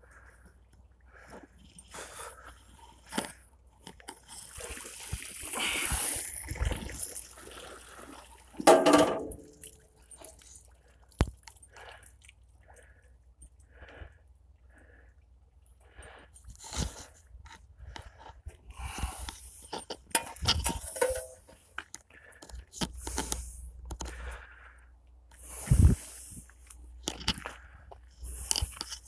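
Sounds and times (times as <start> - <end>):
metal clatter with ring: 19.7 - 21.6.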